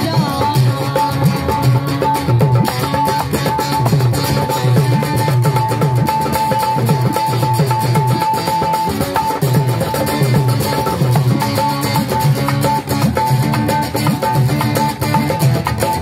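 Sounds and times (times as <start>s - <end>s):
dholak drum beat: 0.0s - 16.0s.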